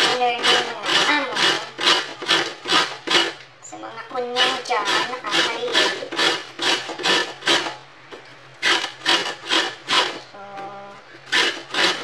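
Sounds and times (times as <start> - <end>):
broccoli scraping on metal grater: 0.0 - 3.4, 4.2 - 7.8, 8.6 - 10.2, 11.3 - 12.0.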